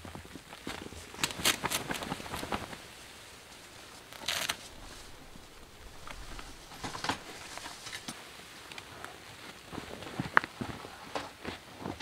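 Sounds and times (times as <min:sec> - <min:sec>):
brief rustles and scrapes: 0:03.5 - 0:08.2.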